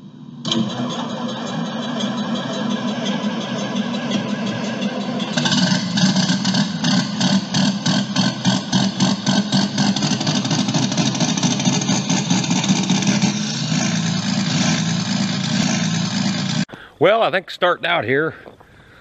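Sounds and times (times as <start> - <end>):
engine running: 0.0 - 16.7
rapid rhythmic ticking: 1.4 - 16.2.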